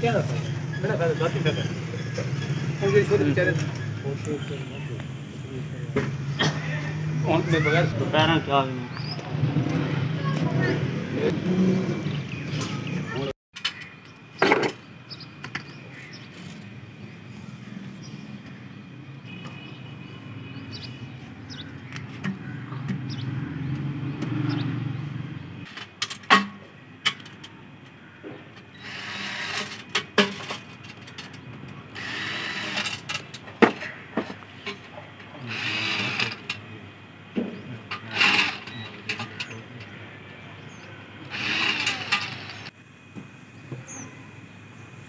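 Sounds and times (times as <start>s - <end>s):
cordless drill driving screws: 28.8s - 29.9s, 31.9s - 33.2s, 35.5s - 36.5s, 38.1s - 38.8s, 41.3s - 42.7s
metal parts clicking and knocking: 29.1s - 33.9s.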